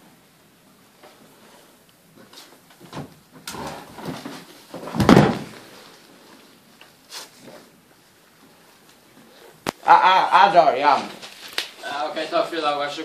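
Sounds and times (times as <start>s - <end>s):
body thudding on hard floor: 2.9s - 5.7s.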